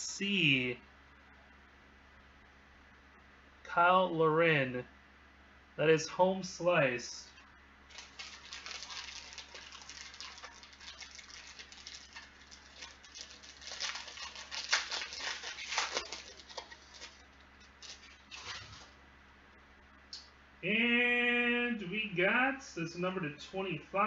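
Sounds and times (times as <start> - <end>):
plastic wrapper crinkling and tearing: 7.9 - 19.0.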